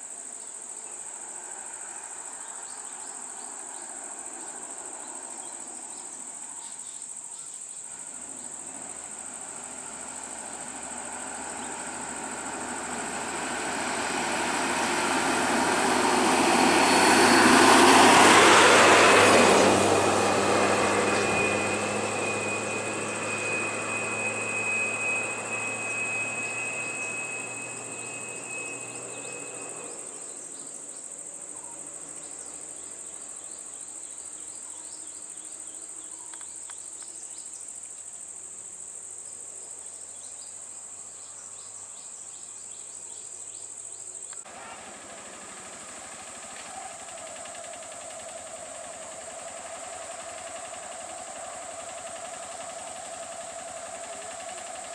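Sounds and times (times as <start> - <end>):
high insect buzz: 1.6 - 31.2, 47.1 - 54.9
diesel bus engine driving off: 8.0 - 30.7, 44.4 - 54.9.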